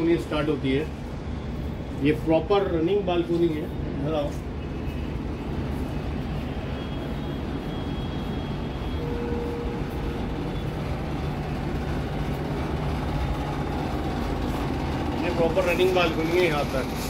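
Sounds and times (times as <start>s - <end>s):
distant city traffic rumble: 0.0s - 17.0s
short steady tone: 6.5s - 11.4s.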